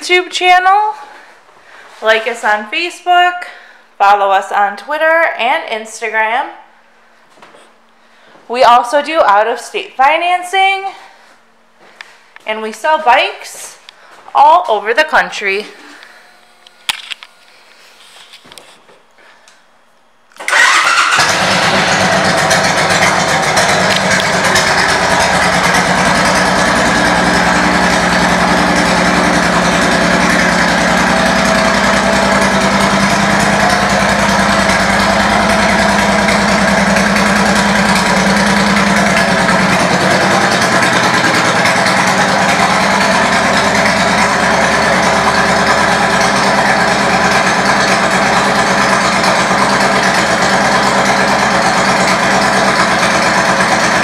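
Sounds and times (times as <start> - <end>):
motorcycle engine starting and idling: 20.4 - 54.0.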